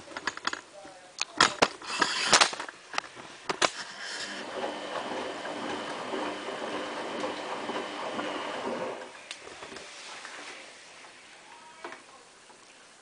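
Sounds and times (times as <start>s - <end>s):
washing machine motor whine: 3.9s - 11.4s
rushing wash water: 4.2s - 11.5s.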